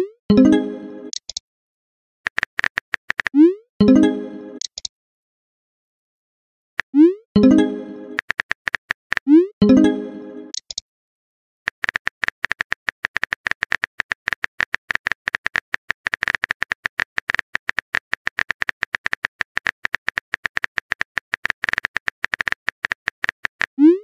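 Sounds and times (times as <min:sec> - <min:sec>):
phone keyboard typing clicks: 0:02.3 - 0:03.4, 0:08.1 - 0:09.3, 0:10.5 - 0:10.8.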